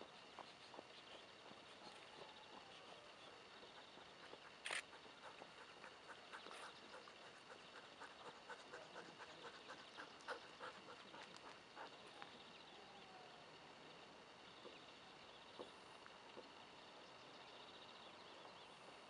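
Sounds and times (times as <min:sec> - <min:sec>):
dog panting: 0:00.0 - 0:12.5.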